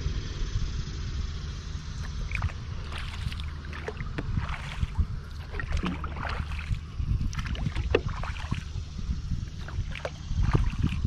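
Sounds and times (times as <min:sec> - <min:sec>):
low rumble: 0:00.0 - 0:11.0
paddle splashing and dripping: 0:02.0 - 0:08.8, 0:09.5 - 0:11.0
water lapping against hull: 0:02.0 - 0:11.0.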